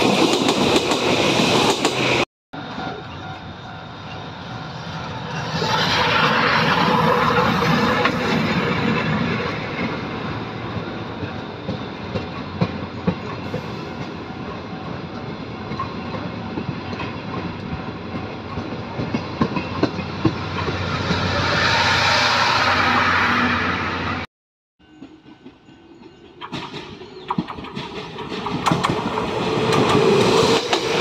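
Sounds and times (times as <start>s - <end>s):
train wheels clacking on rails: 0.0s - 2.2s, 6.0s - 21.4s, 24.8s - 31.0s
steam locomotive passing: 0.0s - 31.0s.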